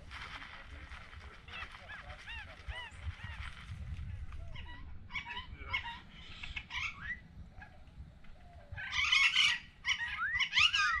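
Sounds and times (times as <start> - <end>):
parrots screeching: 4.5 - 7.2, 8.8 - 11.0.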